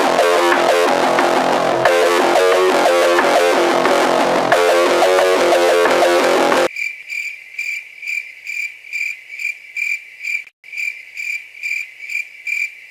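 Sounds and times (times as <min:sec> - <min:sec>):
guitar music: 0:00.0 - 0:06.7
cricket chirping: 0:06.7 - 0:12.9.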